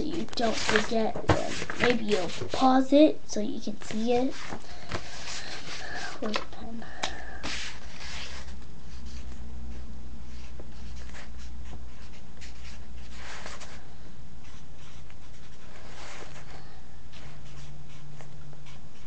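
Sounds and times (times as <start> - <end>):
steady low hum: 0.0 - 19.0
pen scratching on paper: 0.2 - 2.6, 10.3 - 13.6, 14.4 - 16.4, 17.1 - 19.0.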